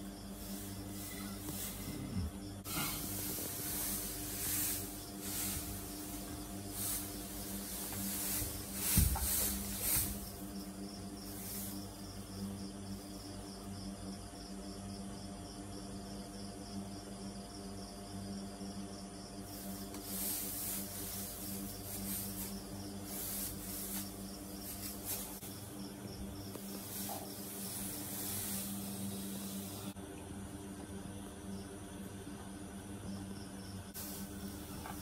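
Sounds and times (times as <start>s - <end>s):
straw rustling: 2.7s - 10.6s, 19.5s - 30.0s
dull thump: 8.8s - 9.4s.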